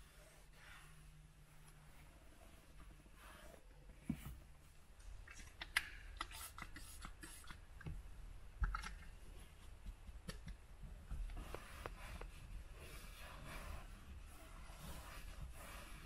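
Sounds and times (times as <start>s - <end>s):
towel wiping leather: 0.0s - 4.3s, 11.4s - 16.0s.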